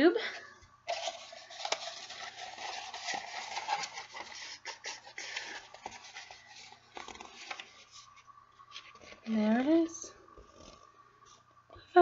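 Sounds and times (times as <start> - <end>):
paper rustling and crinkling: 0.9 - 9.5.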